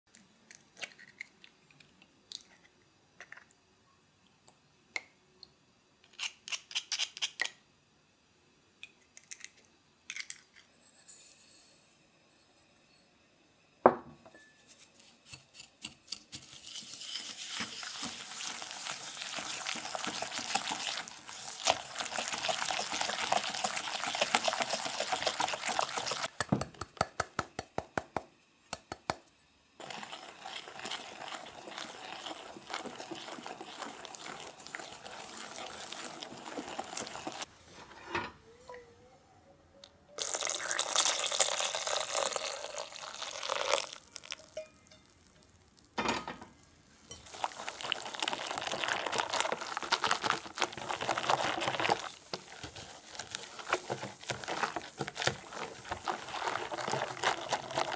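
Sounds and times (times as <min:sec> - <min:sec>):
whisk beating eggs in a bowl: 0:16.3 - 0:26.4, 0:29.8 - 0:37.5, 0:47.2 - 0:57.9.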